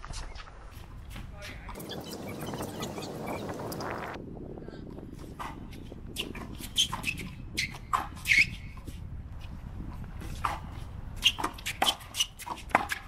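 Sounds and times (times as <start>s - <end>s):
steady low rumble: 1.7s - 6.2s.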